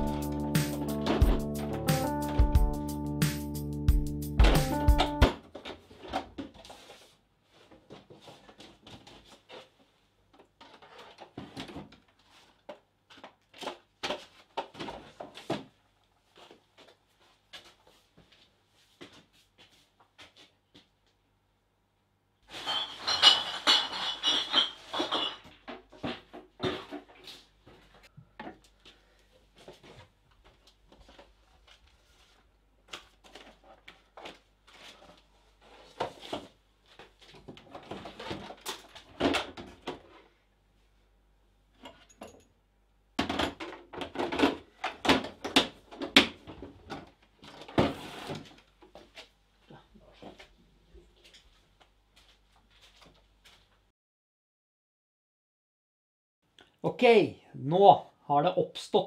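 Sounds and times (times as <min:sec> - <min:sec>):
hard objects clattering: 0:22.5 - 0:27.1.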